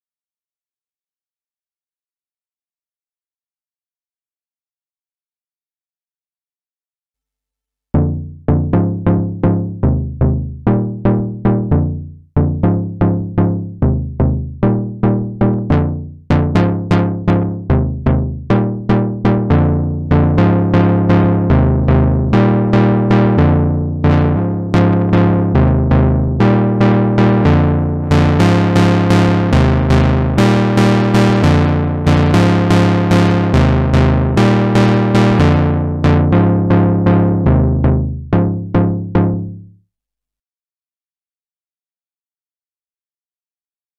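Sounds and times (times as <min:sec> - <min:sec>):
analog synthesizer lead line: 0:08.0 - 0:39.7.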